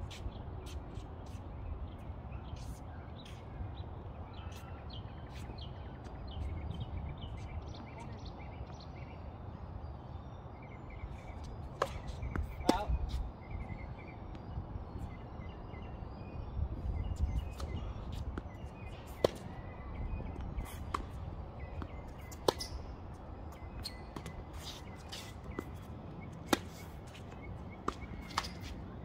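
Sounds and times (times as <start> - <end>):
tennis ball bouncing: 11.8 - 12.9, 18.3 - 19.6, 20.4 - 22.9, 26.4 - 28.8
tennis ball hitting racket: 21.8 - 22.8, 26.4 - 27.2, 27.8 - 28.8.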